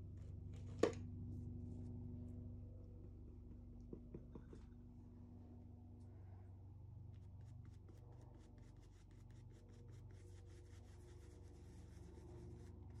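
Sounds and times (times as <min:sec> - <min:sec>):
paintbrush rubbing strokes: 0:07.0 - 0:13.0.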